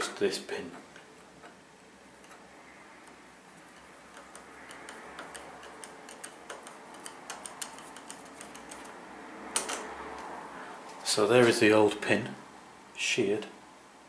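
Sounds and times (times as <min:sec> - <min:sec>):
metallic clicks and ticks: 0:02.2 - 0:10.4.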